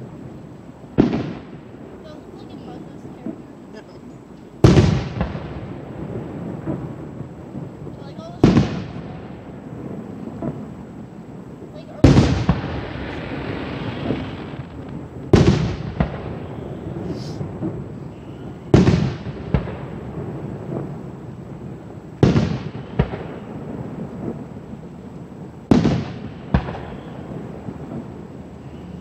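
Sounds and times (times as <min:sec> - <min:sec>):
distant fireworks booms: 0:00.0 - 0:29.0
small fireworks pop: 0:06.4 - 0:09.2, 0:09.8 - 0:10.9, 0:11.7 - 0:21.1, 0:22.2 - 0:29.0.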